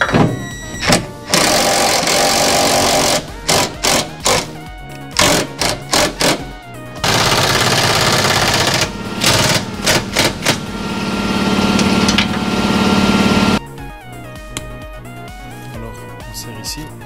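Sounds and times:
impact wrench rattling: 0.9s - 4.5s, 5.2s - 6.4s, 7.0s - 13.4s.

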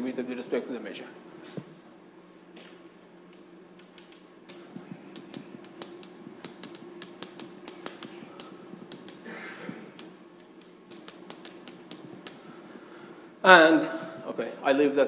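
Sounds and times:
chalk tapping on blackboard: 3.9s - 9.3s, 9.9s - 12.5s.

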